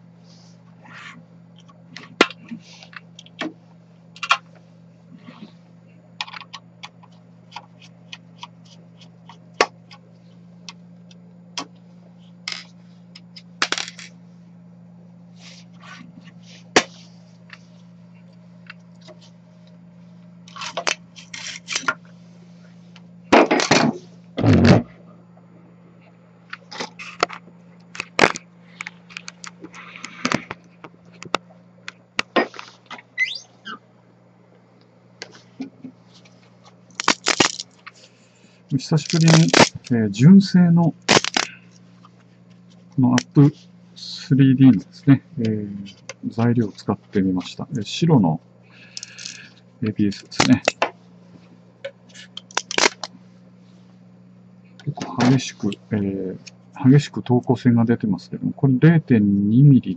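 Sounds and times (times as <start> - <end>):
steady low hum: 0.0 - 59.9.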